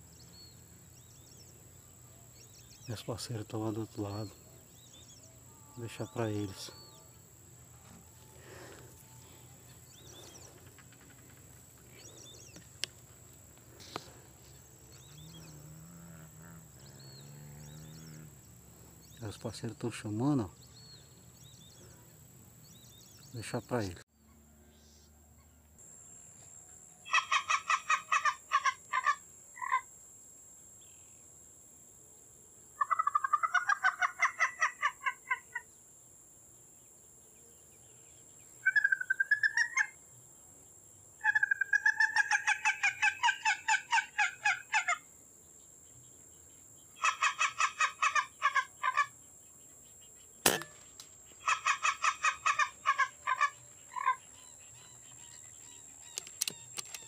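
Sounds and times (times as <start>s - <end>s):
bird clucking calls: 10.0s - 12.6s, 27.1s - 29.8s, 32.8s - 35.6s, 41.2s - 45.0s, 47.0s - 49.1s, 50.5s - 57.0s
sharp click: 50.4s - 51.1s, 56.1s - 57.0s.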